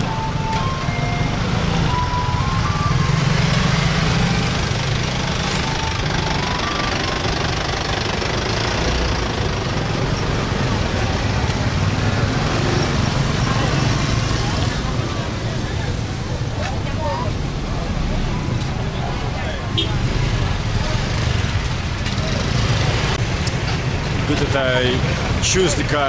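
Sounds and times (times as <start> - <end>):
ice cream cart jingle: 0.0 - 15.6
motor traffic rumble: 0.0 - 26.0.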